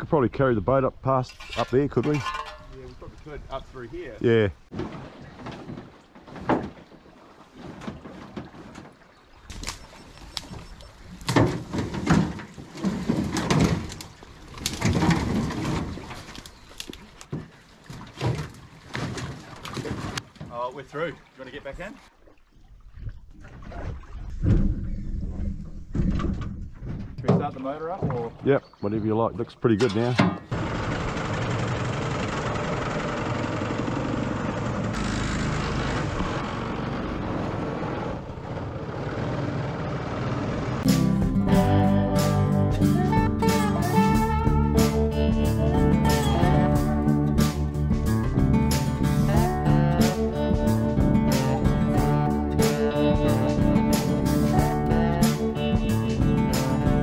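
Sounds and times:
boat hull knocking and scraping: 0:04.6 - 0:20.9, 0:23.0 - 0:30.6
branches rustling and cracking: 0:07.9 - 0:20.5
boat engine running: 0:30.5 - 0:57.0.

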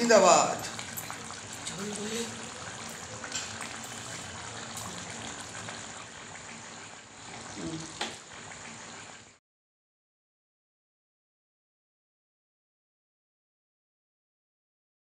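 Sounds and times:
curry simmering with bubbling hiss: 0:00.0 - 0:09.4.

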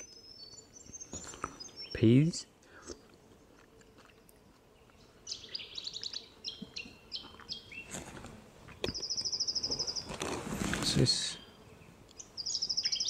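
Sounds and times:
small bird chirping and whistling: 0:09.0 - 0:10.1, 0:12.2 - 0:13.0.

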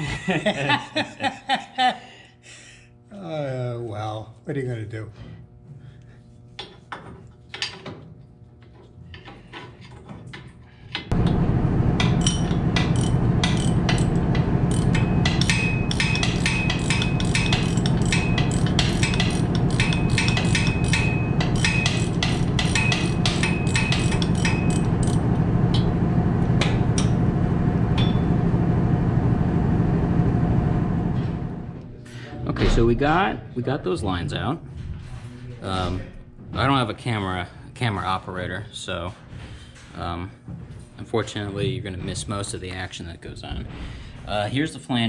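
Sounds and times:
machine humming: 0:11.1 - 0:32.0.

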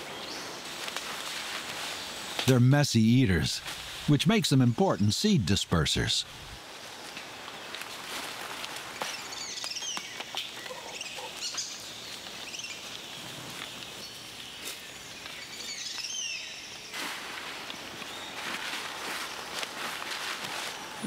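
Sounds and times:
background hiss: 0:00.0 - 0:21.0
light ticks and patter: 0:07.0 - 0:16.2.

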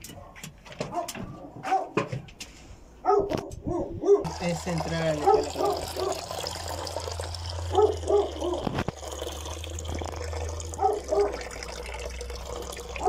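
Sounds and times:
water trickling into plastic bowl: 0:04.2 - 0:13.0.

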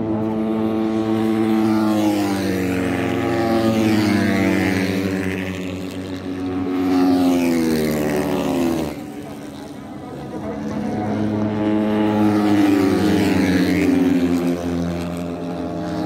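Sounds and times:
racing motorcycle engines passing: 0:00.0 - 0:16.0.

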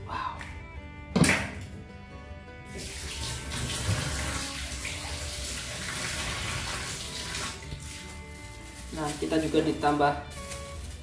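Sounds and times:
tap water running into steel sink: 0:02.7 - 0:08.0
hands rinsing under water: 0:02.7 - 0:08.2.

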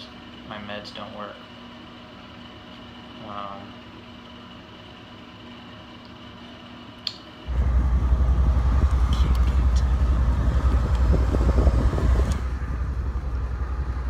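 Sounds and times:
low rumble: 0:07.5 - 0:14.0.

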